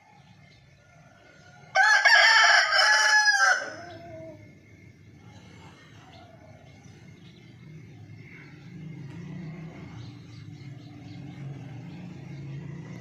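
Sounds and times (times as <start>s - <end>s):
rooster crowing: 0.7s - 4.6s.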